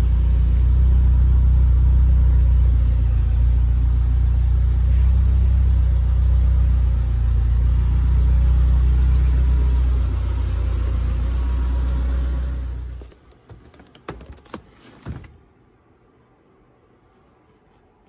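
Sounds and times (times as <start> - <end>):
car engine idling: 0.0 - 13.4.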